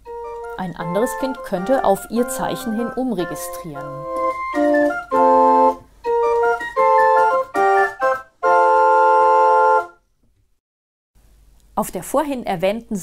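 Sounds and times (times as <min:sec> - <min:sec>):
small pipe organ playing chords: 0:00.1 - 0:10.0.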